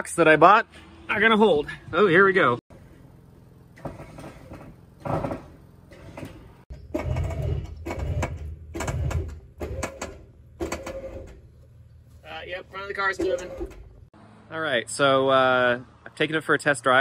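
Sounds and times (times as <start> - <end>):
sheet metal creaking and popping: 3.8 - 11.4.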